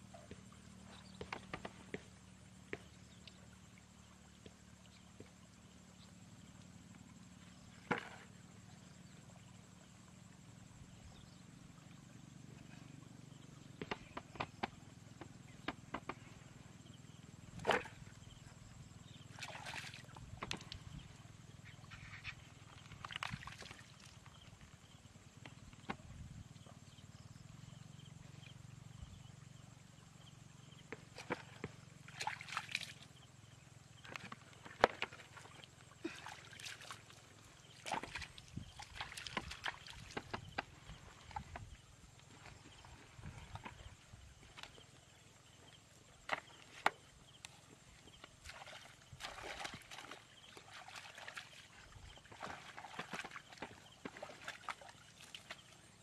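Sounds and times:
hands sloshing in mud: 0:19.3 - 0:20.2, 0:34.8 - 0:41.2, 0:48.4 - 0:55.8.

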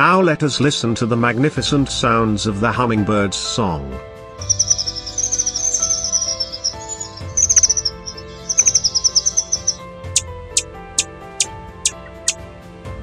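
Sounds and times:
soft background music: 0:00.0 - 0:13.0
hummingbird chirps: 0:04.4 - 0:11.1.

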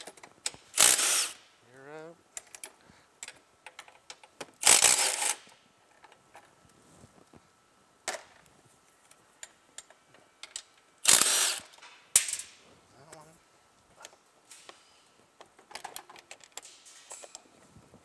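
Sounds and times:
power tool driving bolts: 0:00.0 - 0:01.5, 0:03.7 - 0:05.6, 0:10.4 - 0:12.5
tools clicking and tapping: 0:02.4 - 0:05.3.

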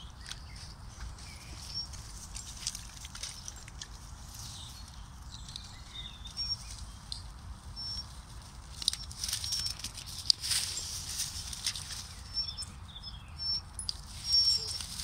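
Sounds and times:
bird chirps: 0:00.0 - 0:02.0, 0:04.4 - 0:08.2, 0:08.8 - 0:10.0, 0:12.0 - 0:15.0
paws rustling through grass: 0:00.0 - 0:12.8, 0:13.4 - 0:15.0.

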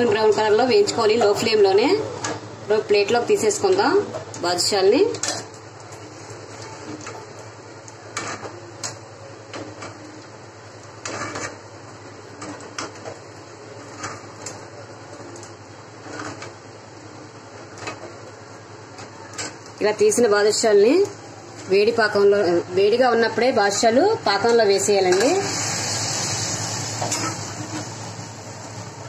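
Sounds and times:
deep-frying sizzle in oil: 0:24.8 - 0:29.0.

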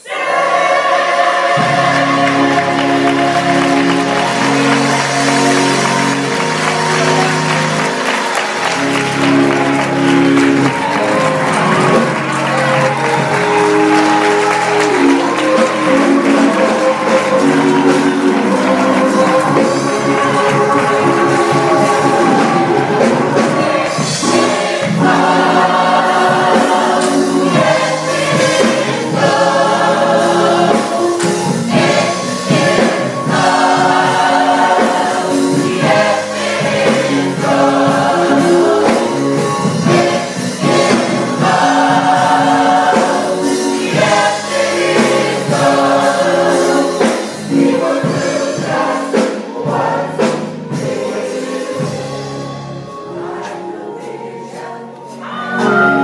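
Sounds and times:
gospel choir singing: 0:00.0 - 0:56.0
instrumental accompaniment: 0:00.0 - 0:56.0.

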